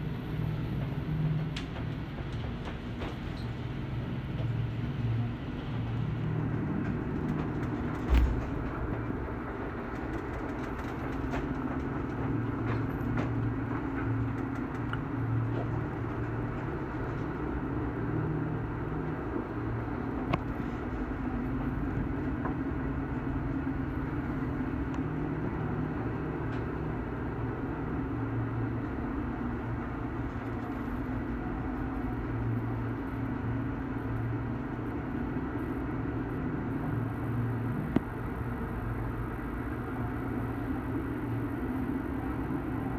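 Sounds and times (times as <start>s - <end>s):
ship engines droning: 0.0s - 42.9s.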